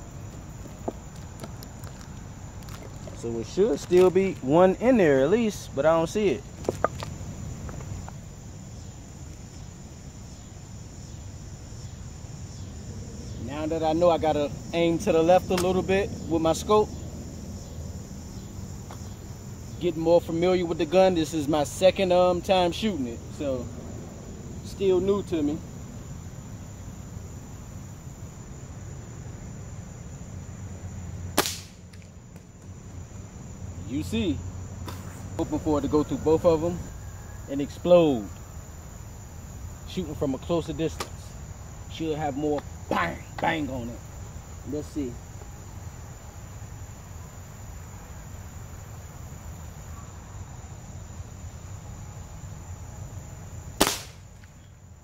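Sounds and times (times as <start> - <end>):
crickets chirping: 0.0 - 55.0
air rifle shot: 31.4 - 31.8, 53.8 - 54.4
even hiss: 53.8 - 54.5.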